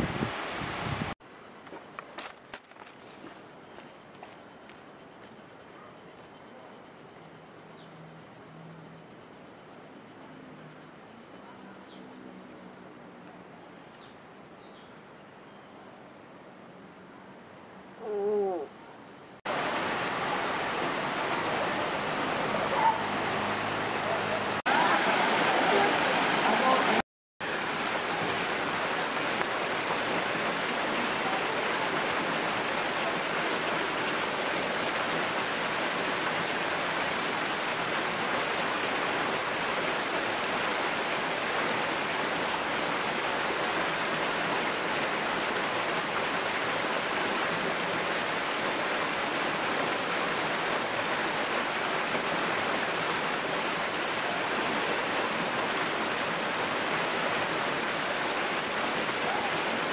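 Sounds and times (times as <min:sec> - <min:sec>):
waterfall pouring into pool: 0:19.5 - 0:59.9.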